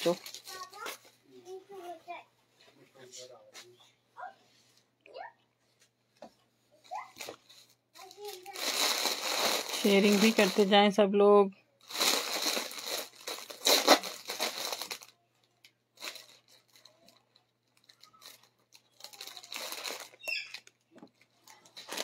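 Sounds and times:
plastic bag crinkling: 0:00.0 - 0:01.0, 0:07.2 - 0:11.0, 0:11.8 - 0:22.0.

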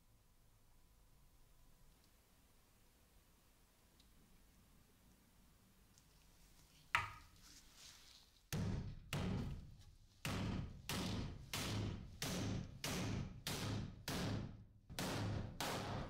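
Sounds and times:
hammer striking nail into wood: 0:08.5 - 0:09.6, 0:10.2 - 0:16.0.

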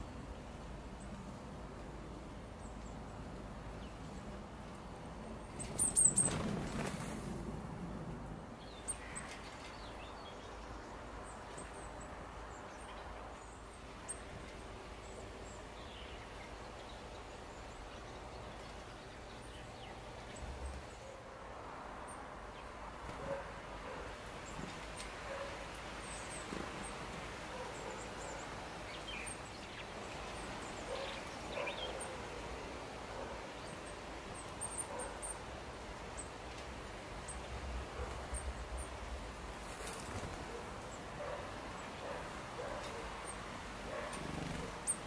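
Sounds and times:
outdoor background noise: 0:00.0 - 0:45.0
small birds chirping: 0:05.4 - 0:07.1, 0:24.4 - 0:45.0.

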